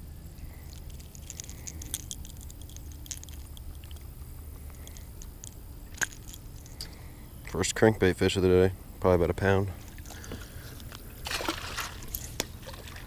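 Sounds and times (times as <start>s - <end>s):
clicks and rustles of handling fish: 0.4s - 7.0s, 9.8s - 13.0s.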